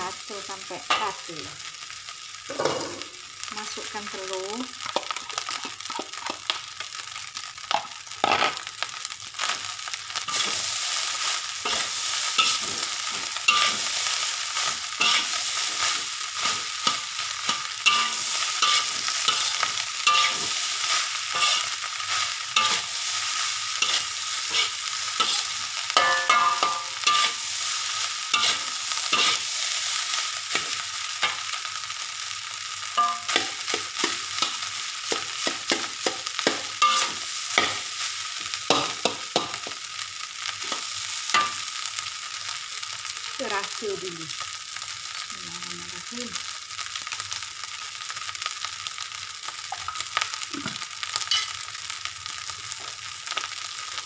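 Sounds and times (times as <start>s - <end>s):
food sizzling: 0.0s - 54.0s
metal spatula scraping a wok: 10.3s - 31.5s, 33.0s - 38.0s.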